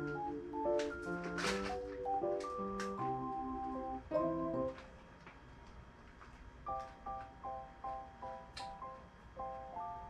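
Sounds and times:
background music: 0:00.0 - 0:04.8.

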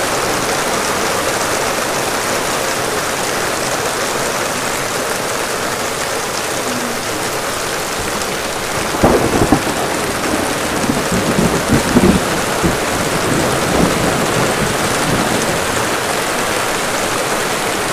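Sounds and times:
heavy rain falling: 0:00.0 - 0:17.9
water pouring off roof: 0:00.0 - 0:17.9
thunder rumbling: 0:06.7 - 0:16.1.

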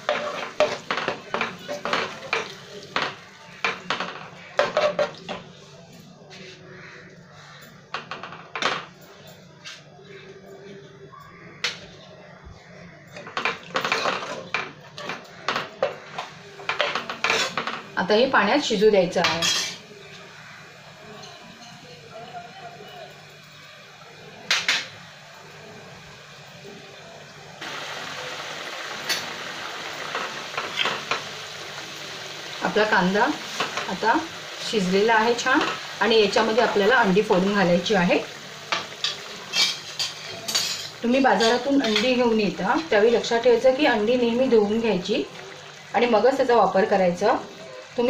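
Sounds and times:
ladle stirring in a pan: 0:00.0 - 0:05.8, 0:13.1 - 0:18.0, 0:38.3 - 0:42.2
masala bubbling and sizzling: 0:00.0 - 0:09.9, 0:11.3 - 0:48.0.

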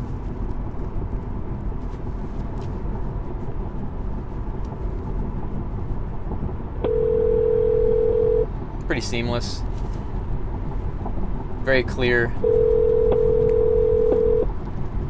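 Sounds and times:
tyre and road noise in car: 0:00.0 - 0:15.0
phone ringback tone: 0:06.8 - 0:08.5, 0:12.4 - 0:14.5.

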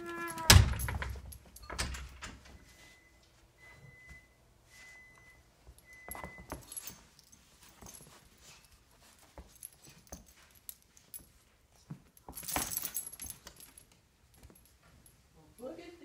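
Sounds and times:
dog whining: 0:00.0 - 0:00.7
rustling: 0:04.8 - 0:15.3
light metallic clinks: 0:05.8 - 0:15.9.

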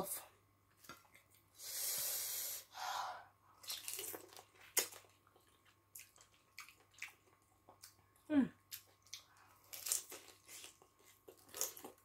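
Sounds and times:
wet smacks and clicks eating: 0:03.7 - 0:08.0.

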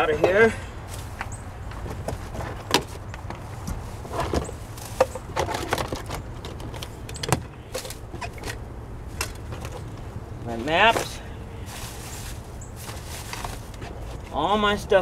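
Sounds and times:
plastic clicks and rustles: 0:04.1 - 0:08.6.

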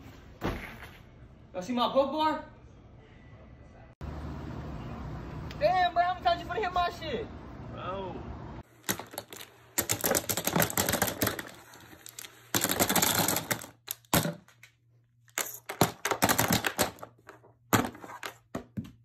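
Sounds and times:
plastic pens clattering into box: 0:08.8 - 0:14.4, 0:15.3 - 0:17.4.

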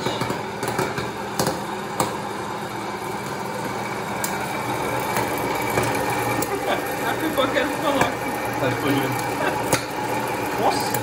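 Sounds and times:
popcorn kernels popping: 0:00.0 - 0:02.3, 0:09.6 - 0:10.1
popcorn popper fan whirring: 0:00.0 - 0:11.0.

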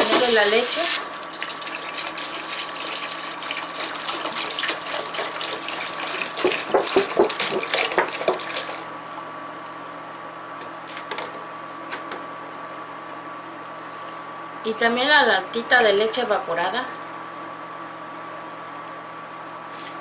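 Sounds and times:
milk pouring and splashing: 0:01.0 - 0:08.9.

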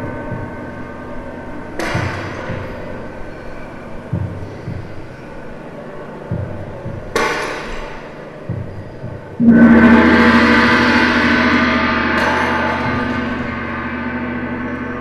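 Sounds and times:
bright metallic crash: 0:09.4 - 0:15.0
gong ringing: 0:09.4 - 0:15.0.

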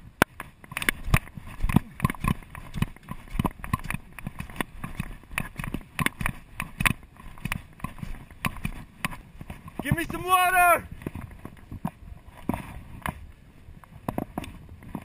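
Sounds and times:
hand tool chopping dry grass: 0:00.3 - 0:10.5.

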